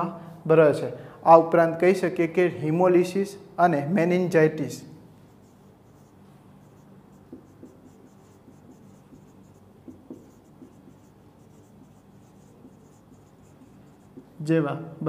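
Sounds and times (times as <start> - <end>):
marker pen writing on whiteboard: 5.3 - 14.5.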